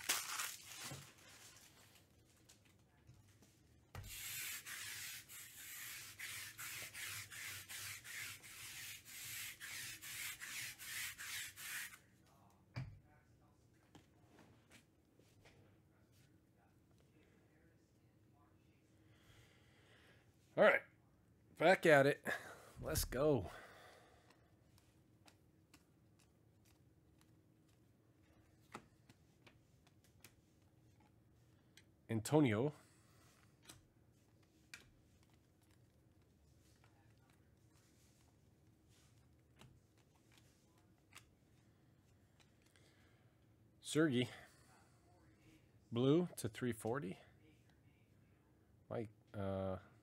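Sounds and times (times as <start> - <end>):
rhythmic dry scraping: 4.1 - 12.0.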